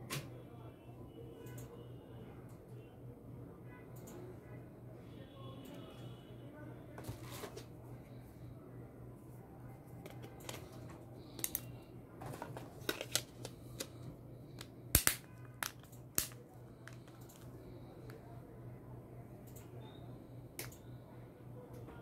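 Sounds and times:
plastic cover snapping: 15.0s - 17.0s.

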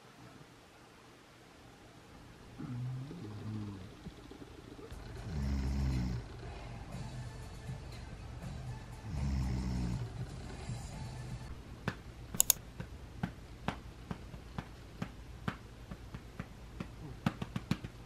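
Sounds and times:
background music: 4.9s - 11.6s.

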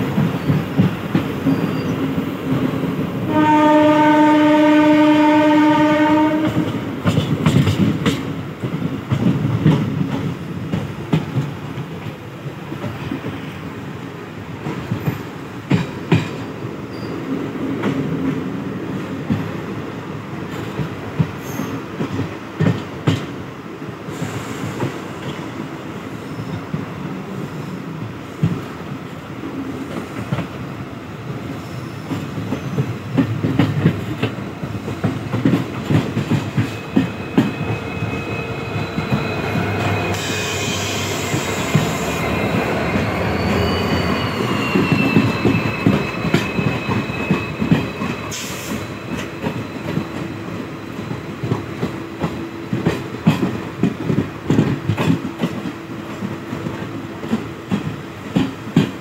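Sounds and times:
train wheels clattering over rail joints: 6.4s - 11.6s, 50.9s - 59.0s
metallic wheel squeal: 36.5s - 51.2s.

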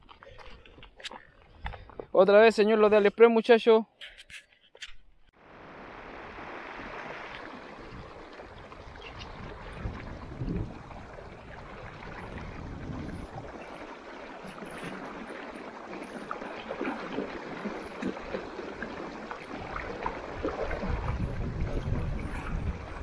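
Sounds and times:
river water running: 5.4s - 23.0s
water splashing and gurgling: 5.4s - 23.0s.

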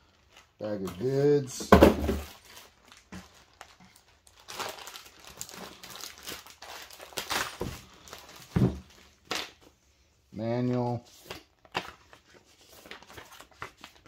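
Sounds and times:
plastic bags crinkling: 0.0s - 9.6s.

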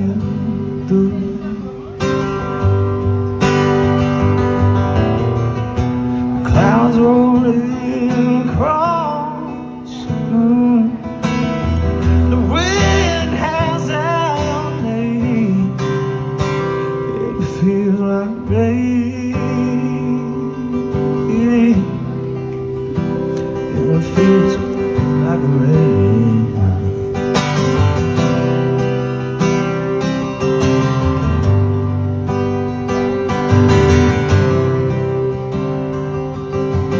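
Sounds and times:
man singing: 0.0s - 2.2s, 6.4s - 22.4s, 23.6s - 27.5s
acoustic guitar strumming chords: 0.0s - 36.9s.

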